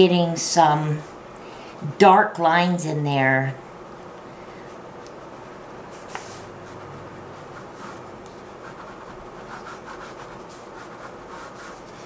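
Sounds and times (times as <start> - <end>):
ballpoint pen scribbling on paper: 5.4 - 12.0.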